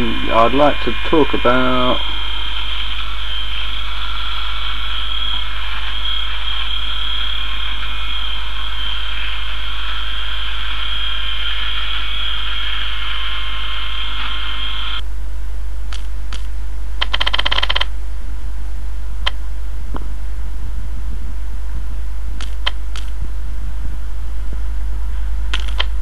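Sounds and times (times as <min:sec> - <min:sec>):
high hiss: 0:00.0 - 0:15.0
faint thin whine: 0:00.0 - 0:26.0
low electrical hum: 0:00.0 - 0:26.0.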